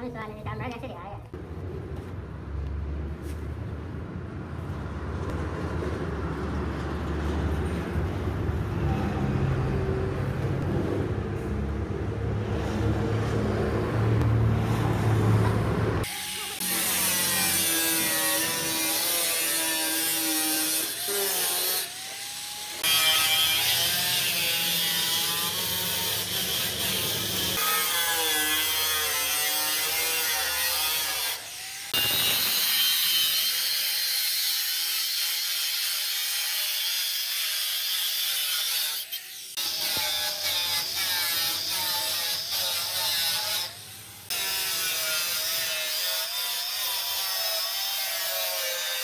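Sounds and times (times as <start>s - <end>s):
angle grinder cutting sheet steel: 16.0s - 49.0s.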